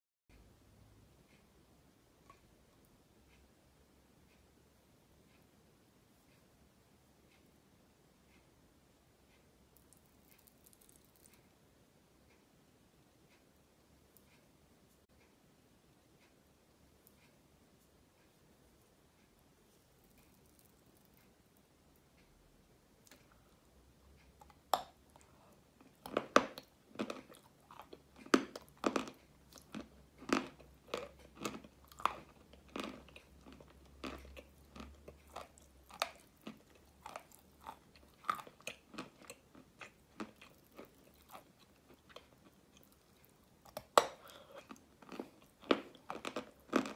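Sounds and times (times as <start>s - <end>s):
clay being chewed with crunches: 9.8s - 11.6s, 19.7s - 22.2s, 23.0s - 46.9s.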